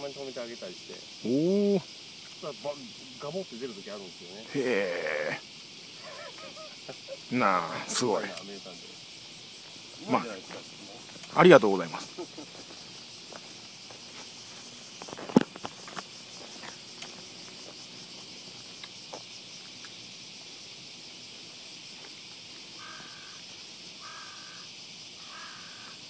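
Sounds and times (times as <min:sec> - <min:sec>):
insects droning: 0:00.0 - 0:26.0
crow cawing: 0:22.8 - 0:23.4, 0:24.0 - 0:26.0.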